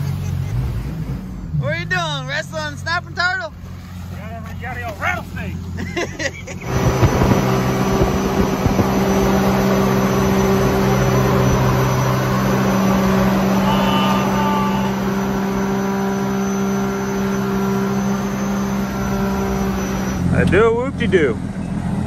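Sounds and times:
wind hiss: 6.6s - 12.1s
jet boat engine running hard: 6.6s - 20.3s.

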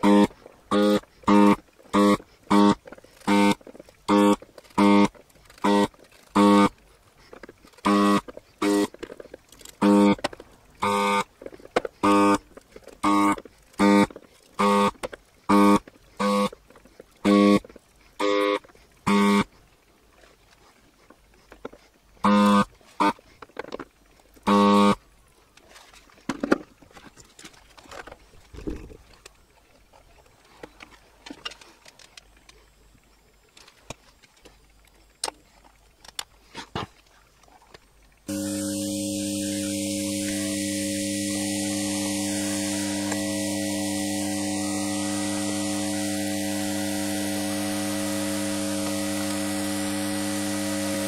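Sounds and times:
vacuum pump buzzing: 0.0s - 19.5s, 22.2s - 23.2s, 24.4s - 25.0s, 38.3s - 51.0s
steady hum with hiss: 0.0s - 51.0s.

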